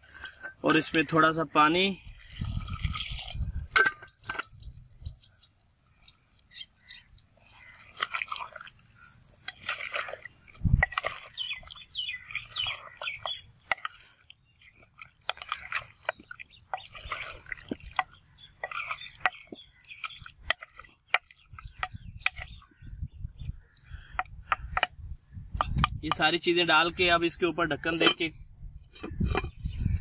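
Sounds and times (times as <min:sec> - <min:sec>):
metal ladle scraping clay pot: 0:00.0 - 0:01.3, 0:02.0 - 0:04.8, 0:09.4 - 0:22.7, 0:24.0 - 0:26.3, 0:27.3 - 0:30.0
wet squelching: 0:02.0 - 0:04.4, 0:06.7 - 0:22.9.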